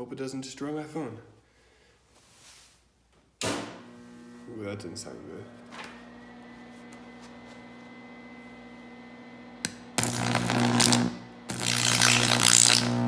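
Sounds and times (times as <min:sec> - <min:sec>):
low electrical hum: 0:03.3 - 0:13.0
sharp electrical snap: 0:09.7 - 0:13.0
electric arc crackling and hissing: 0:10.0 - 0:13.0.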